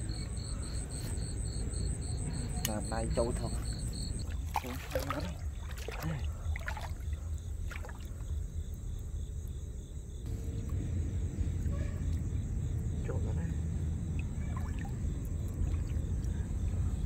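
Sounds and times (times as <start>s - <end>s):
faint water splashes and knocks: 3.5s - 8.4s, 14.2s - 16.9s
steady low rumble: 5.3s - 17.0s.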